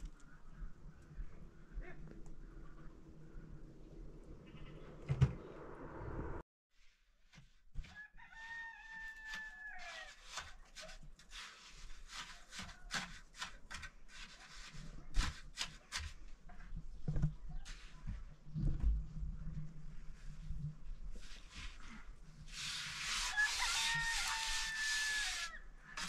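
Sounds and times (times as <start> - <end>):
rooster crowing: 8.0 - 10.1, 23.2 - 25.6.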